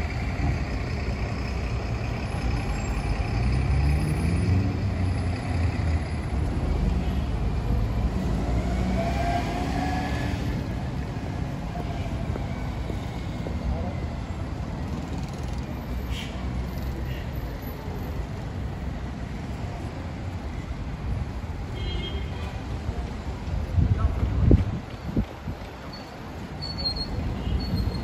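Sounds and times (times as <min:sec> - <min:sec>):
car engines passing: 0:00.0 - 0:21.7.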